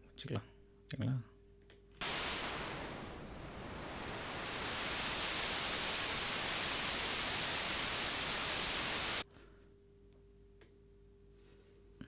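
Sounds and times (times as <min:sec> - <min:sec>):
synthesised white noise sweep: 0:02.0 - 0:09.2.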